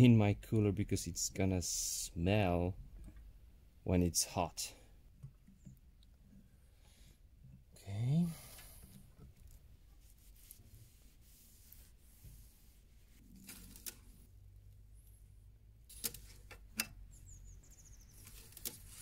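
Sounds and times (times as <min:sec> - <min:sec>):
cloth rubbing: 0:09.4 - 0:14.4.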